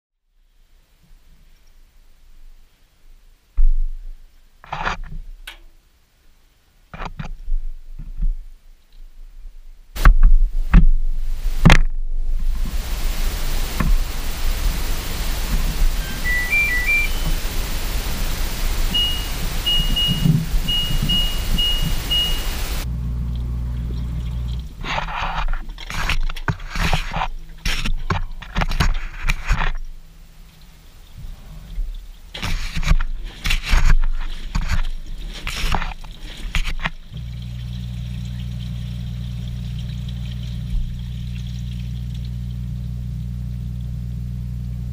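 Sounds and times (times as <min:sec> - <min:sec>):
steady hiss with low rumble: 0:00.2 - 0:44.9
running water: 0:10.0 - 0:44.9
washing machine hum: 0:12.4 - 0:28.6, 0:30.8 - 0:44.9
water and clothes sloshing in drum: 0:12.5 - 0:30.0, 0:30.6 - 0:42.8
electronic tone tune: 0:15.8 - 0:18.2, 0:18.8 - 0:24.6
short control panel beeps: 0:16.0 - 0:17.3, 0:18.9 - 0:22.6.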